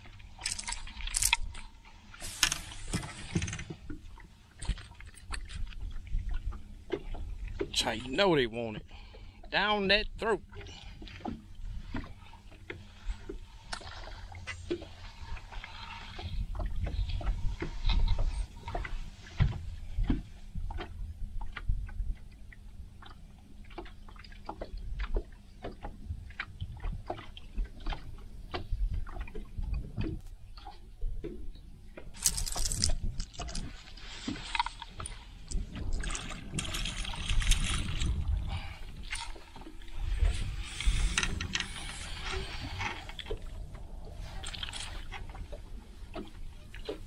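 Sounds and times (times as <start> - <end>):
water lapping against boat hull: 0.0 - 47.0
clicks and knocks of gear: 0.4 - 4.0, 32.0 - 38.1
low rumble: 29.0 - 46.6.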